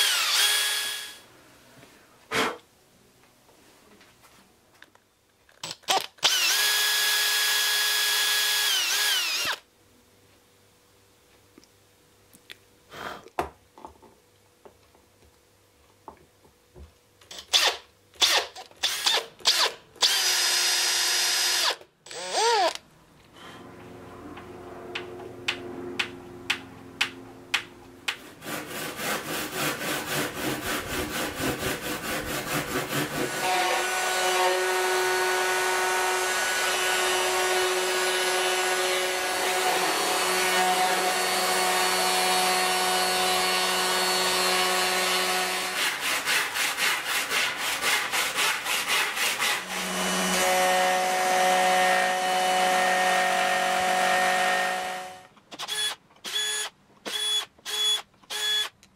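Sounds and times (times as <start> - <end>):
electric router cutting: 0.0 - 1.2, 6.2 - 9.6, 33.3 - 45.8, 49.6 - 58.7
router table bit running: 6.2 - 9.6.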